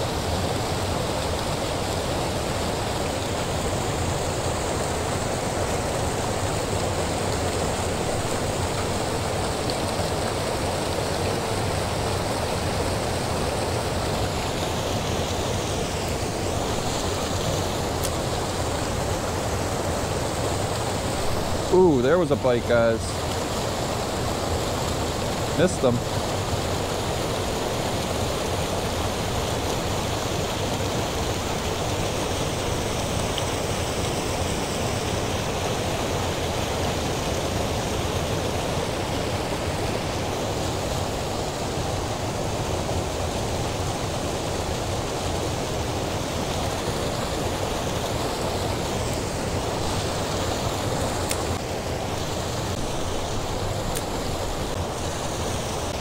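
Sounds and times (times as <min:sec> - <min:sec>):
water rushing over weir: 0:00.0 - 0:56.0.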